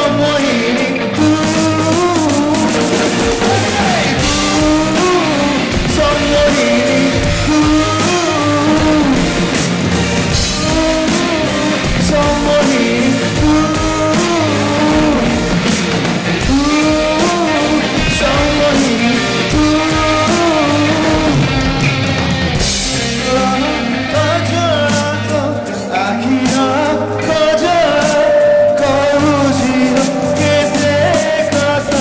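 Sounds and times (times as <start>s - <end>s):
woman singing: 0.0s - 9.6s, 10.3s - 15.6s, 16.4s - 21.8s
man singing: 0.0s - 22.1s, 22.8s - 32.0s
band with keyboards and drums: 0.0s - 32.0s.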